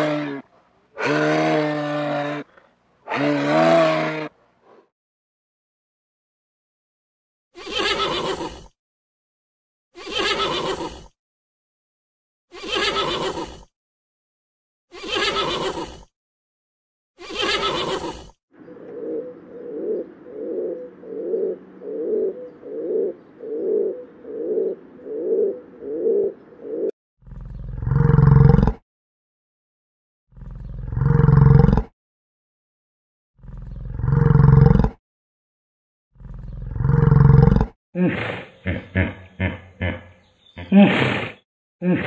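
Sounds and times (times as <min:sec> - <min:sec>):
horse neighing: 0:03.1 - 0:04.3, 0:07.6 - 0:08.7, 0:10.0 - 0:11.1, 0:12.6 - 0:13.6, 0:15.0 - 0:16.0, 0:17.2 - 0:18.3
pigeon cooing: 0:17.3 - 0:26.9
cow lowing: 0:17.5 - 0:28.7.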